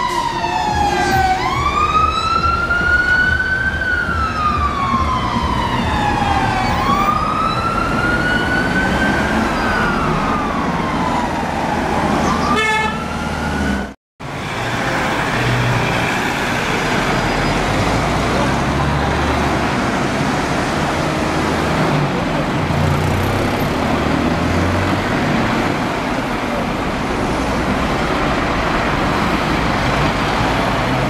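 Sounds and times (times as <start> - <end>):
fire engine siren wailing: 0.0 - 14.0
road traffic noise: 0.0 - 31.0.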